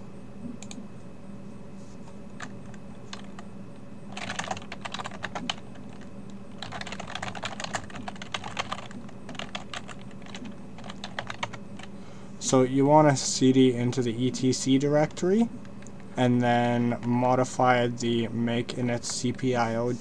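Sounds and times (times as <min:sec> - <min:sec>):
low steady hum: 0:00.0 - 0:20.0
typing on a keyboard: 0:04.1 - 0:11.9.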